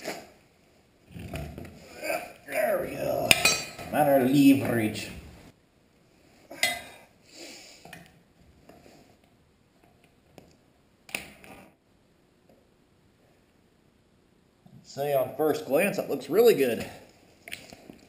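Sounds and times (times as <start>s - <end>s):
man talking: 2.4s - 5.3s, 14.8s - 17.1s.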